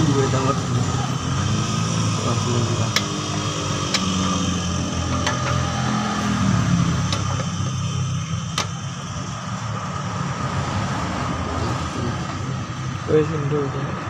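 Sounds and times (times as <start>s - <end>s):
low machine hum: 0.0s - 10.1s
sharp metallic clicks: 2.9s - 3.2s, 3.8s - 4.3s, 7.1s - 7.6s.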